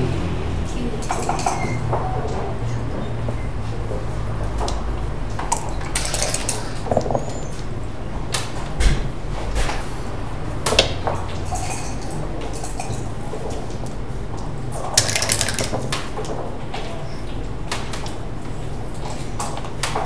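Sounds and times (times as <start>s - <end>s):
steady low hum: 0.0s - 19.8s
dice rattling: 5.5s - 7.6s, 15.0s - 16.0s.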